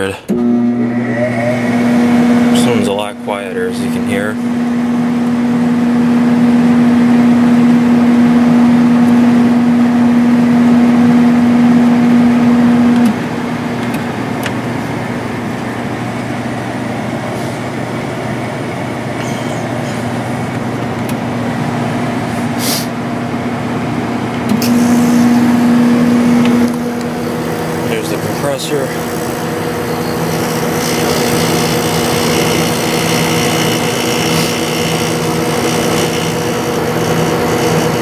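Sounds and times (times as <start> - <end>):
air conditioner blower rush: 0.0 - 38.0
air conditioner hum: 0.0 - 38.0.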